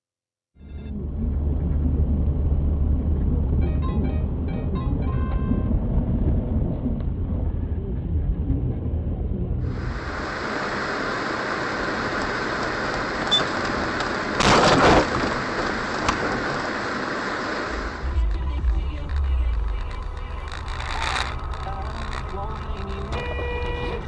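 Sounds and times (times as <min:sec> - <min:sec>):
road rumble: 0:00.6 - 0:24.0
steady rushing hiss: 0:09.6 - 0:14.4, 0:15.0 - 0:23.0.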